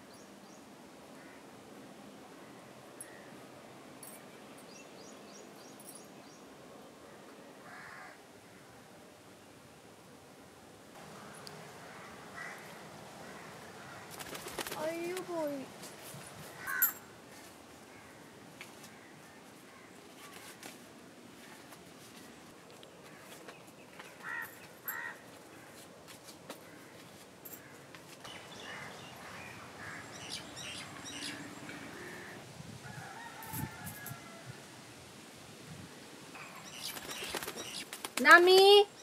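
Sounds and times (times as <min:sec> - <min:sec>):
coins and banknotes handled: 0:16.1 - 0:17.0.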